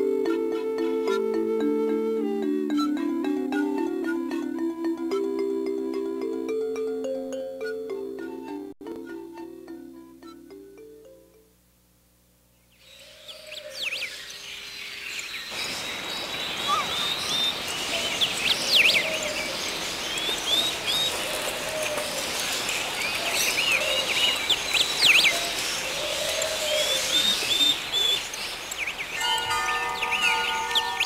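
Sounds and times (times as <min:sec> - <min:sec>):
steady outdoor hiss: 0:00.0 - 0:31.0
birds chirping: 0:12.6 - 0:31.0.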